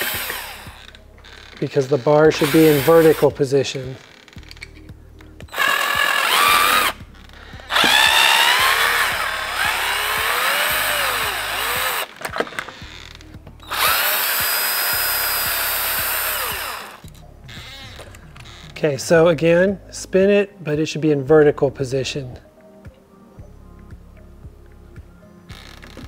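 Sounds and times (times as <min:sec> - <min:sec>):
cordless drill driving screws: 0:00.0 - 0:01.6, 0:02.3 - 0:03.4, 0:05.5 - 0:07.0, 0:07.7 - 0:12.9, 0:13.7 - 0:18.5.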